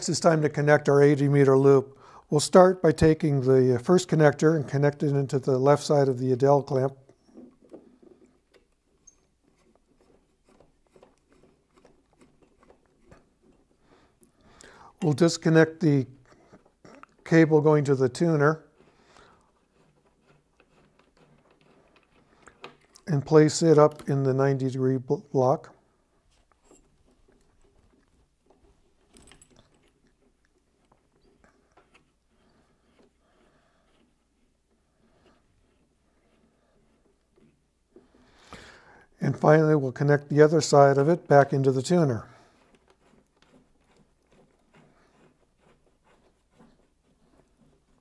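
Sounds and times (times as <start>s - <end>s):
cable connector clicks and scrapes: 19.8s - 23.1s
rattle: 26.6s - 30.1s.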